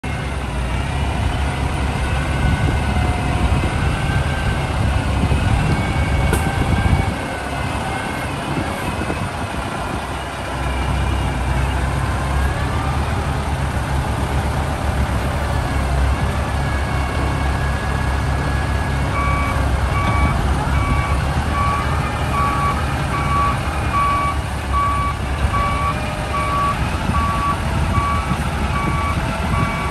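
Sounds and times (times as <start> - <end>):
diesel engine working: 0.0 - 29.9
reversing alarm beeps: 19.1 - 29.9.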